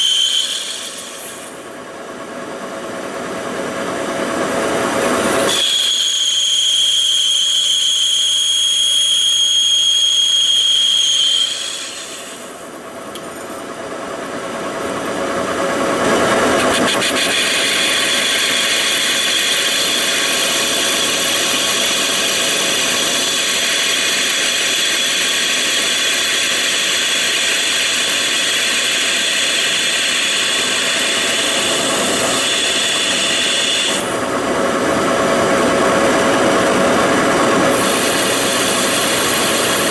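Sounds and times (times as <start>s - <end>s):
lathe cutting tool whine: 0.0s - 2.0s, 3.0s - 12.9s, 14.2s - 39.9s
rough machining noise: 15.7s - 39.9s.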